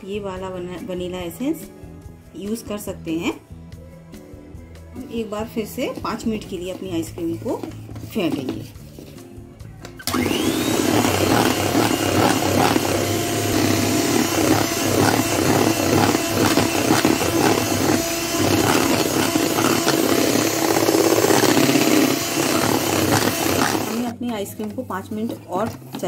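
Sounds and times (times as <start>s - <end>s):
electric hand mixer whirring: 10.0s - 24.2s.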